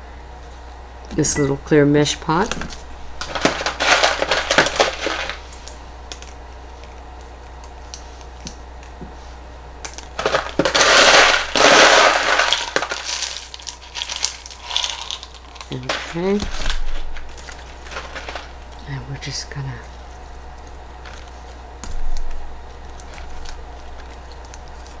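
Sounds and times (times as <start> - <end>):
clay pebbles rattling: 3.2 - 5.6, 10.2 - 18.6.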